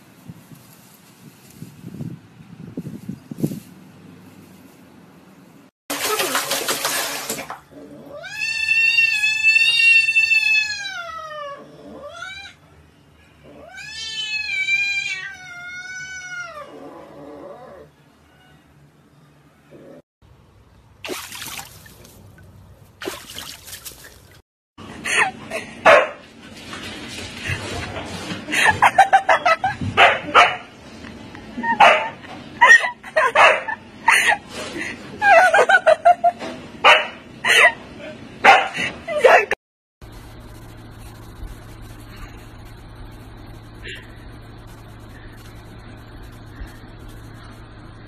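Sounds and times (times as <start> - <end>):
cat yowling: 8.1 - 12.6, 13.5 - 16.7
dog barking and yipping: 25.9 - 26.2, 30.0 - 30.7, 31.6 - 32.2, 33.2 - 33.8, 36.8 - 37.2, 38.4 - 39.6.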